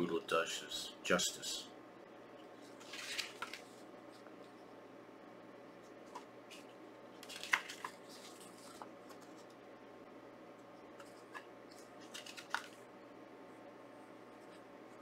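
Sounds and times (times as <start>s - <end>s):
paper pages rustling: 2.6s - 4.6s, 5.9s - 9.6s, 11.0s - 12.8s.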